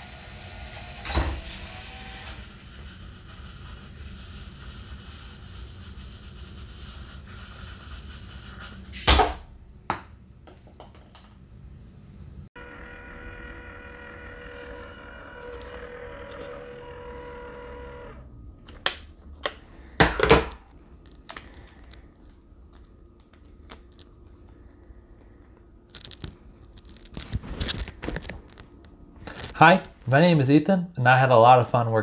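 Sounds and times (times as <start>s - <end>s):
label maker whirring: 0.0s - 4.5s, 12.6s - 18.4s
label backing crinkling and tearing: 20.8s - 29.6s.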